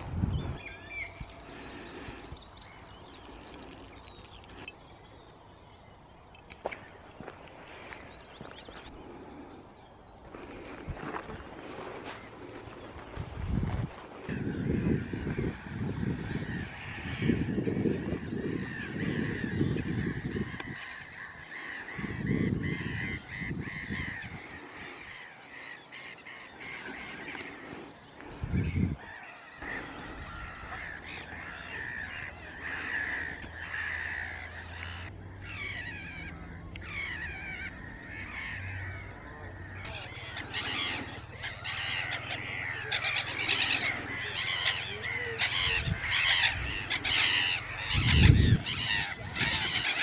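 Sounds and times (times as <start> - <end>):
wind rumbling on microphone: 0.0 - 25.2, 26.3 - 42.8, 43.5 - 50.0
faint birds chirping: 0.0 - 50.0
geese honking: 29.0 - 50.0.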